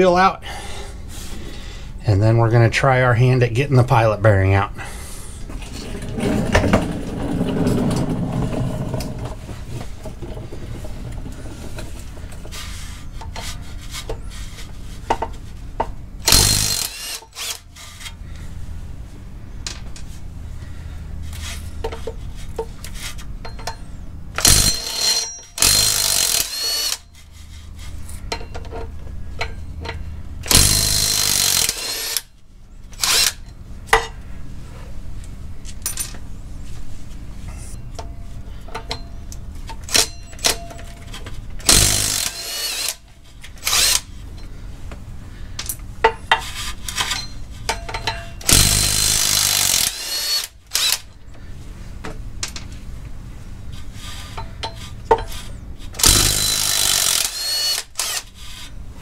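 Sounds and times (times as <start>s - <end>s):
impact wrench bursts: 16.2s - 18.0s, 24.4s - 27.1s, 30.4s - 32.3s, 33.0s - 33.4s, 41.6s - 43.0s, 43.6s - 44.1s, 48.4s - 51.1s, 56.0s - 58.4s.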